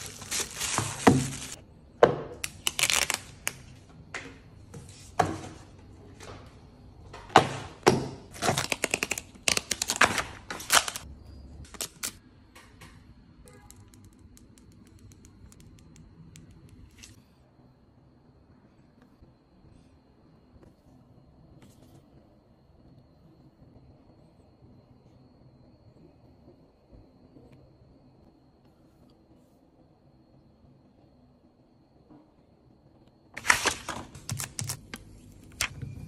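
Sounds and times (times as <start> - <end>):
plastic packaging crinkling: 0.0 - 1.6, 2.4 - 3.6, 8.3 - 11.0, 11.7 - 12.2, 33.4 - 35.7.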